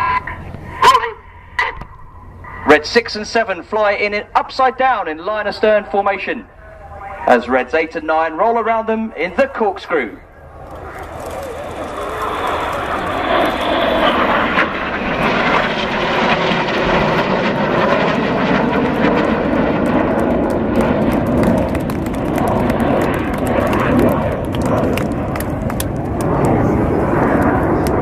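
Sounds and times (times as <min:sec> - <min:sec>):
jets flying past: 0:05.5 - 0:28.0
jet noise crackle: 0:06.6 - 0:28.0.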